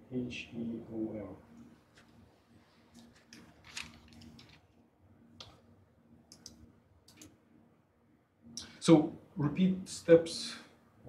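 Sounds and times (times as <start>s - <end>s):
faint low hum: 0.0s - 11.0s
faint clicks and taps: 6.3s - 7.4s.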